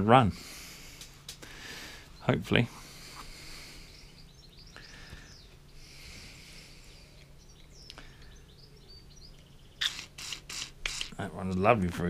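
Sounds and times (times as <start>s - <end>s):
low steady hum: 0.0s - 12.0s
faint bird chirps: 1.9s - 11.2s.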